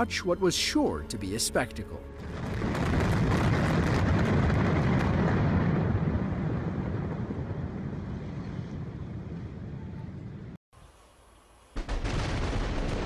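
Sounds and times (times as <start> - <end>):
crackling demolition blasts: 2.2 - 9.8, 11.8 - 13.0.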